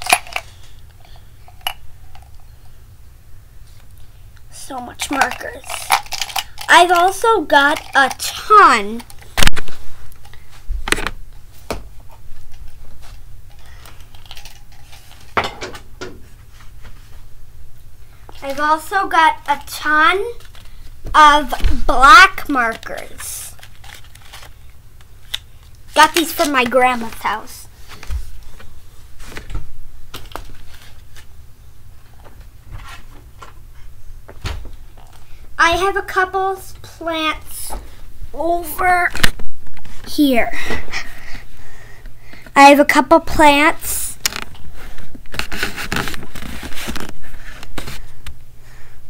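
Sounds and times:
steady low hum: 0.0s - 49.0s
objects handled at a desk: 5.0s - 17.2s, 44.2s - 48.2s.

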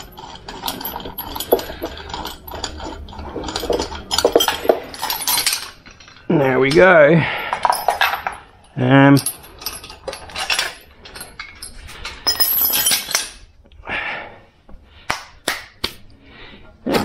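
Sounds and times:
metal parts clinking: 0.0s - 13.5s
metal scraping: 0.0s - 13.5s.

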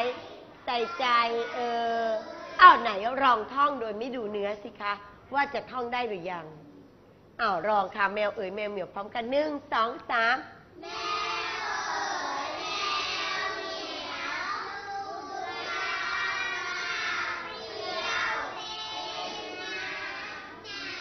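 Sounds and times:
children chanting in unison: 10.8s - 21.0s.

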